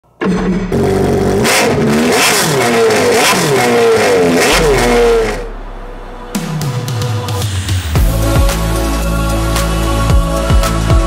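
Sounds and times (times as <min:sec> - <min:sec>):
jet ski engine revving: 0:00.2 - 0:05.5.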